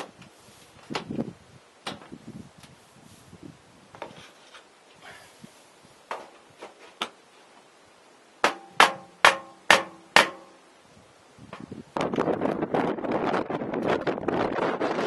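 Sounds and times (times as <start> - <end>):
hammer striking metal pipe: 8.4 - 10.5.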